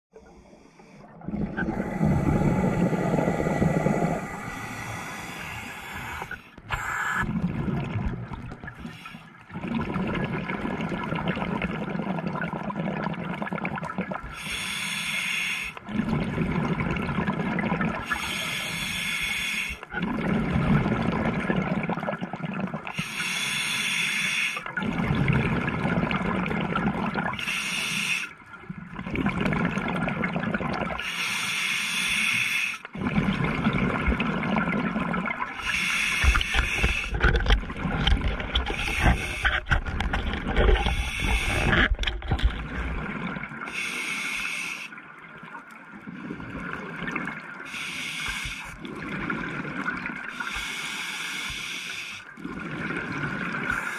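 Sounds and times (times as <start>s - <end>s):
diver breathing through regulator: 0.2s - 7.3s, 14.3s - 15.8s, 18.0s - 19.9s, 22.9s - 24.6s, 27.4s - 28.4s, 31.0s - 32.9s, 35.6s - 42.5s, 43.7s - 45.0s, 47.7s - 48.8s, 50.3s - 52.3s.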